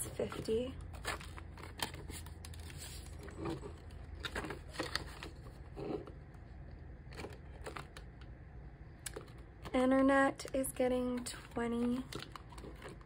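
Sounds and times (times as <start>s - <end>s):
banknotes rustling: 0.0s - 5.6s
plastic envelope crinkling: 11.1s - 13.0s.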